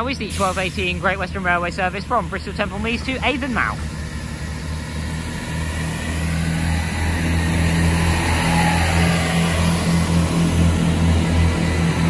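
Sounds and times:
diesel train engine drone: 0:00.0 - 0:12.0.

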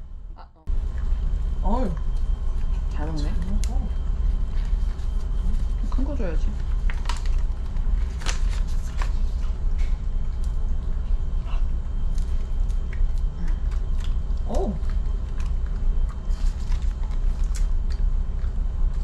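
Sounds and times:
low hum: 0:00.0 - 0:19.0
dog chewing crunchy treat: 0:03.9 - 0:19.0.

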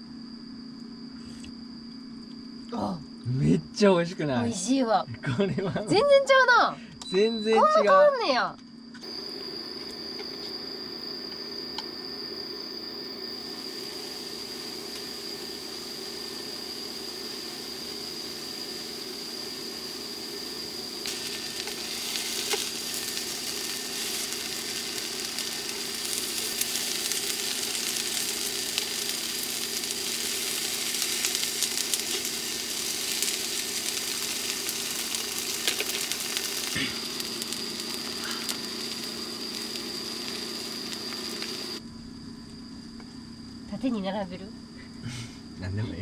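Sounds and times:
steady hum and high whine: 0:00.0 - 0:46.0
fish sizzling in a frying pan: 0:09.0 - 0:41.8.

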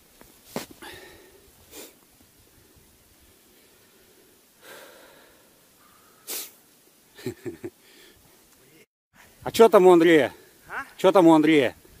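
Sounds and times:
man breathing out heavily: 0:00.8 - 0:02.0, 0:03.5 - 0:06.5, 0:07.8 - 0:08.2.

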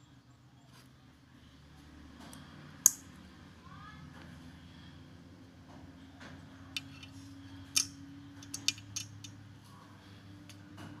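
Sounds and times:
folding knife metal clicks: 0:02.8 - 0:03.1, 0:07.7 - 0:09.4.

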